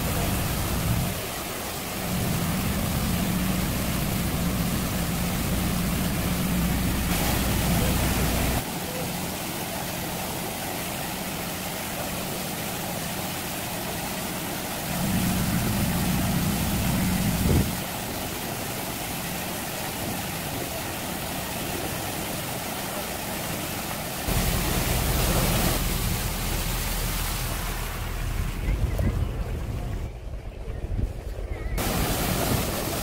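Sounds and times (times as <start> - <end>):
high-pressure water jets spraying: 0.0 - 28.6, 31.8 - 33.0
boat engine humming: 0.0 - 33.0.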